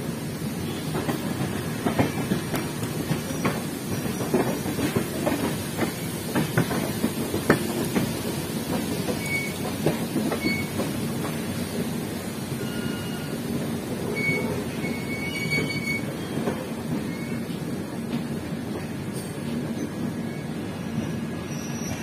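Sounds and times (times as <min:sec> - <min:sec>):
train wheels rumbling: 0:00.0 - 0:22.0
high wheel squeaks: 0:14.1 - 0:17.5.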